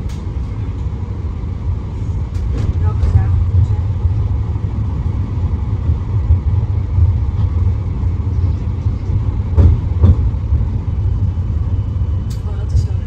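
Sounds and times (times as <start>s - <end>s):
low rumble inside tram: 0.0s - 13.0s.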